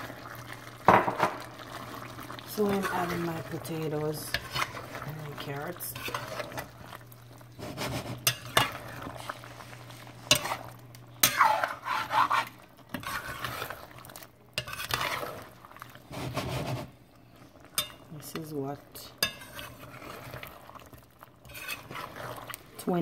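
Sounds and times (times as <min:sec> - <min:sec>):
metal spoon scraping a metal pot: 0:02.6 - 0:05.0, 0:05.8 - 0:06.7, 0:07.9 - 0:08.8, 0:10.2 - 0:13.8, 0:14.6 - 0:15.5, 0:19.2 - 0:20.6, 0:21.4 - 0:22.6.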